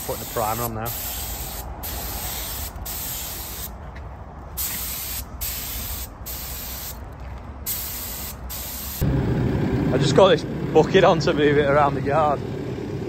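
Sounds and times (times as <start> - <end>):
paint spray gun hissing: 0.0 - 3.7, 4.6 - 7.0, 7.7 - 9.0.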